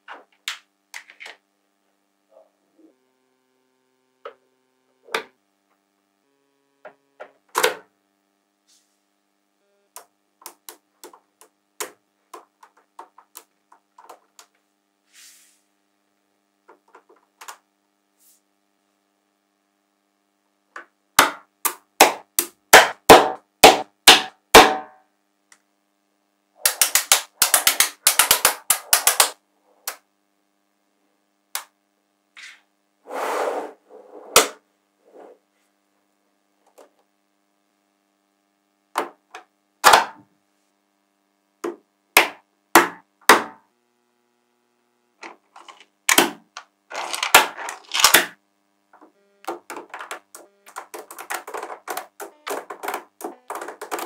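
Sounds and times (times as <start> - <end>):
magnetic balls clicking together: 26.6 - 30.0, 49.0 - 54.0
magnetic balls scraping rattle: 45.5 - 45.9, 46.9 - 48.1.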